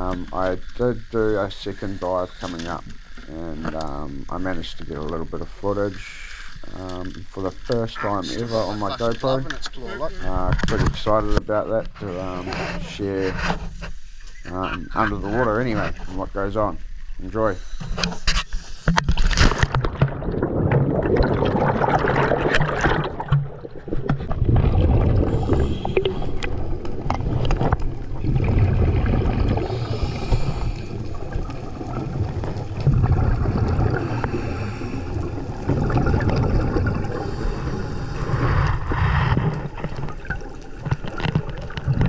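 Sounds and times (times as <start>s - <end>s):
underwater scuba exhaust bubbles: 18.8s - 42.0s.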